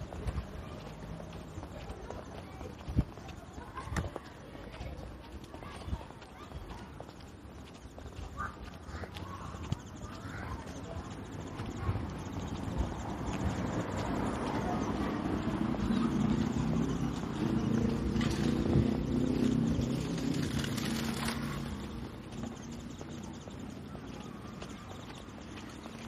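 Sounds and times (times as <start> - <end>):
faint distant voices: 0.0 - 26.0
footsteps on paving stones: 0.0 - 26.0
vehicle engine humming: 8.9 - 26.0.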